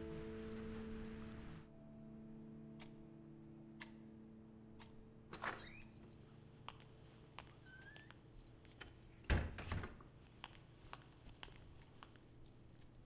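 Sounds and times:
keys jangling in a lock: 0:05.4 - 0:09.0, 0:10.1 - 0:13.0
wooden door opening thud: 0:09.3 - 0:10.0.

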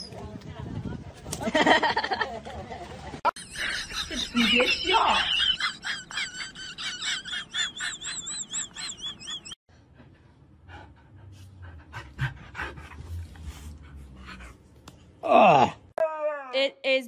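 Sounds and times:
dog panting: 0:09.9 - 0:14.6.

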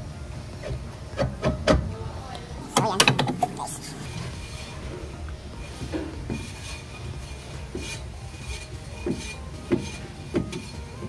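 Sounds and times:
brake shoe scraping drum: 0:03.0 - 0:11.0.

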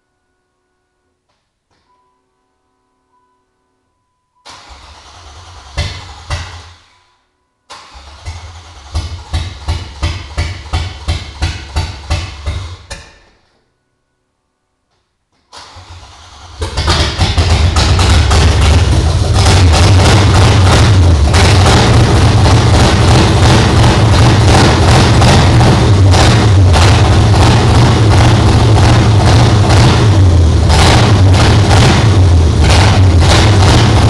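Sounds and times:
engine cranking: 0:04.5 - 0:06.8, 0:07.7 - 0:13.0, 0:15.6 - 0:30.0
engine pops: 0:08.9 - 0:13.3
car engine running loudly: 0:16.0 - 0:34.0.

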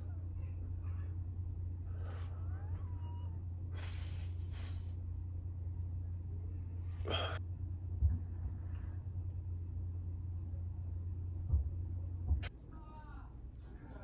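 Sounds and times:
steady low hum: 0:00.0 - 0:14.0
soft low thumps: 0:11.3 - 0:12.5.

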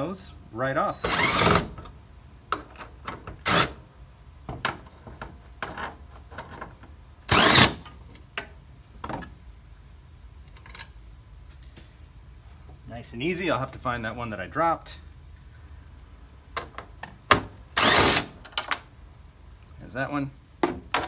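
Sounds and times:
impact driver bursts: 0:01.0 - 0:01.8, 0:07.3 - 0:07.8, 0:17.7 - 0:18.4.

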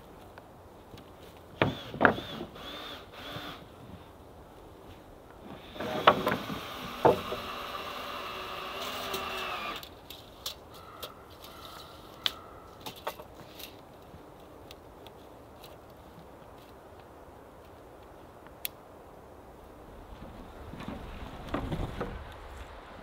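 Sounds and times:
wooden boards knocking together: 0:01.6 - 0:02.3, 0:05.8 - 0:07.6, 0:20.7 - 0:22.3.

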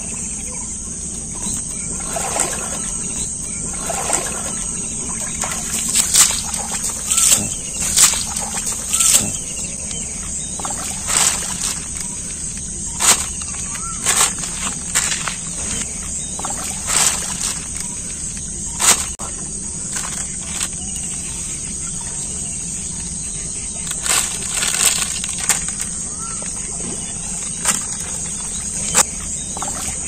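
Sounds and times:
insects droning: 0:00.0 - 0:30.0
fish slapping on plastic sheet: 0:05.4 - 0:09.3, 0:13.0 - 0:15.4, 0:23.9 - 0:25.9.

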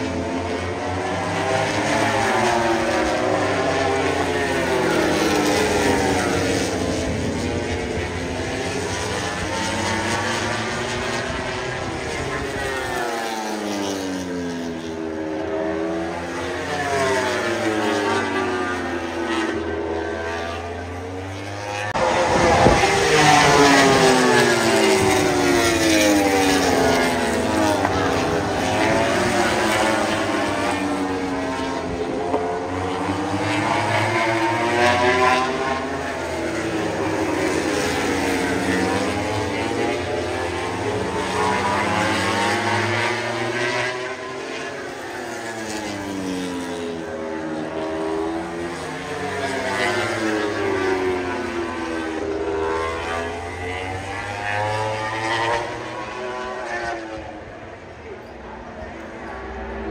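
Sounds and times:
aircraft engine drone: 0:00.0 - 0:43.1.

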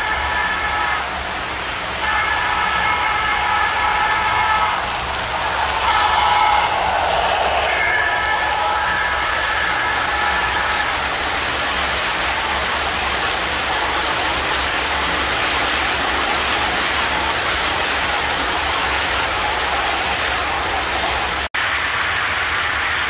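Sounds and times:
model train wheels rattling: 0:03.6 - 0:21.5.

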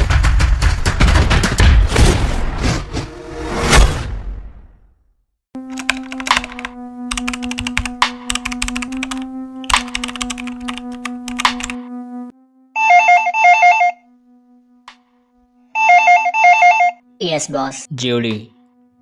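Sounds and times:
keyboard typing clicks: 0:05.7 - 0:11.8
telephone ringing trill: 0:12.8 - 0:14.1, 0:15.8 - 0:17.0.

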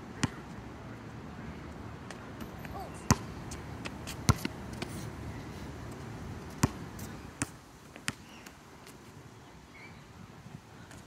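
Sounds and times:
basketball bouncing on hard court: 0:03.0 - 0:03.3.

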